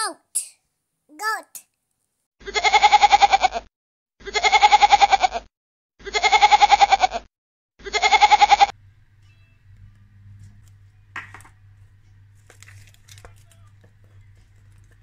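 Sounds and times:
goat bleating: 2.4 - 3.6, 4.2 - 5.3, 6.0 - 8.7.

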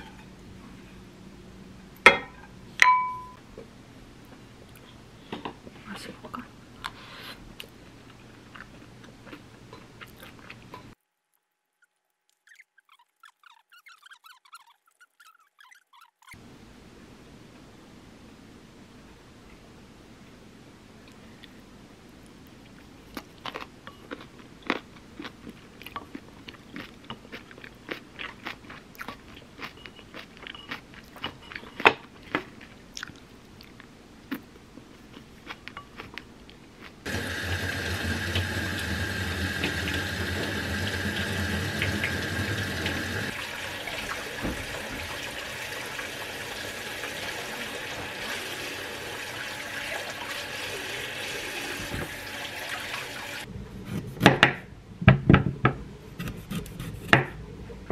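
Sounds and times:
chewing: 7.6 - 11.0, 22.6 - 37.0
faucet running into metal sink: 37.1 - 53.4.

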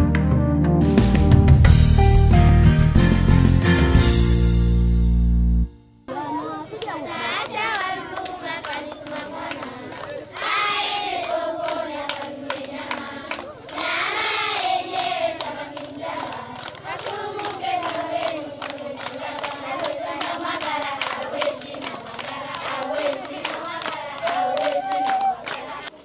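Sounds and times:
hands clapping a beat: 0.0 - 1.4, 6.7 - 14.3, 15.3 - 26.0
children singing: 7.0 - 24.6.

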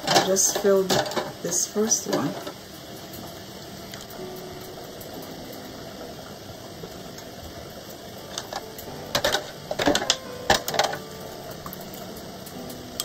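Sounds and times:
metal lids clinking: 0.0 - 1.4, 8.3 - 11.0
low steady background noise: 0.0 - 13.0.

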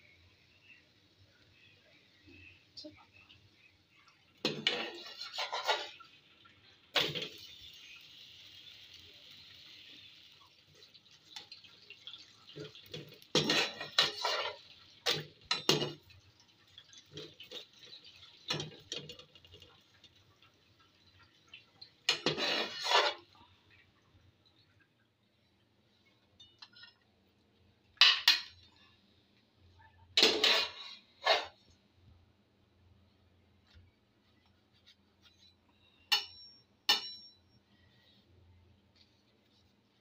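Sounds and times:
faint sizzle from pan: 0.0 - 40.0
utensils clattering on pan and dishes: 4.4 - 6.2, 6.9 - 8.0, 10.8 - 20.2, 22.0 - 23.5, 26.4 - 27.1, 28.0 - 28.8, 30.2 - 31.6, 35.3 - 37.6.

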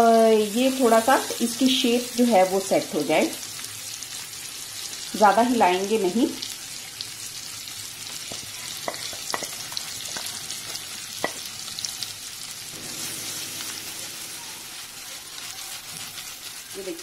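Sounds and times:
cheese sizzling in hot oil: 0.0 - 17.0
oil crackles: 13.4 - 17.0.

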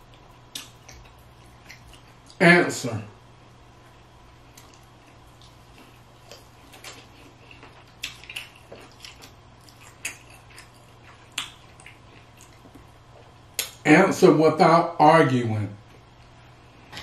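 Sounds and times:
man eating mouth sounds: 0.0 - 2.4, 4.0 - 13.8
faint low hum: 0.0 - 17.0.

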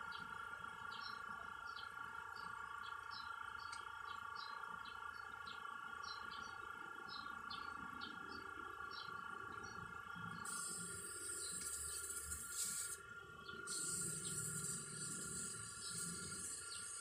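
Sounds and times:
small birds chirping: 0.0 - 17.0
steady hum: 9.1 - 17.0.

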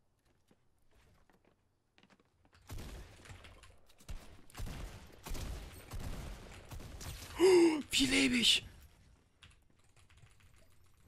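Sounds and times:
video game gunfire: 2.7 - 8.6.

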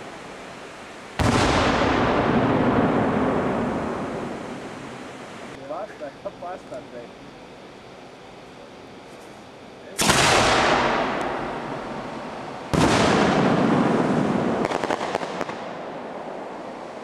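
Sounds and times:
small firework pops: 10.0 - 11.4, 14.6 - 15.7
firework shells bursting: 10.0 - 15.9.

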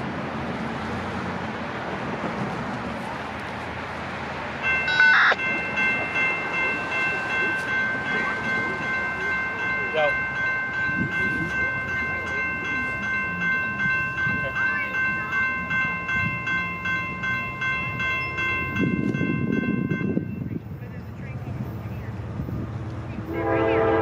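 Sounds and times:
locomotive horn chord: 23.3 - 24.0.

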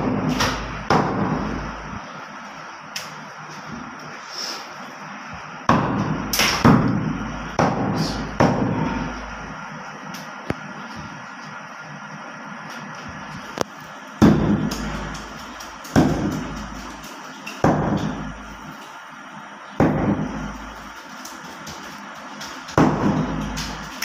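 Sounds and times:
cleaver chopping meat on wood: 14.2 - 14.9, 17.6 - 18.2.

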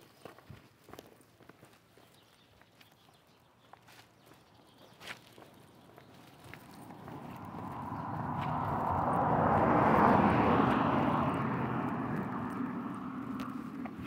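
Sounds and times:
vehicle passing by: 5.6 - 14.0.

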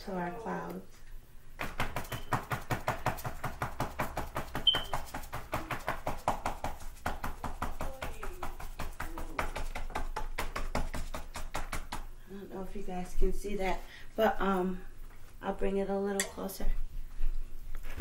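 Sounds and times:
paintbrush dabbing on paper: 2.0 - 11.6.

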